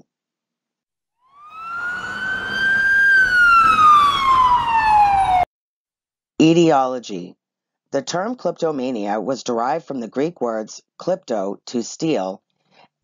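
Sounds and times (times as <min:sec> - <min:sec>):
siren wail: 0:01.2 - 0:05.5.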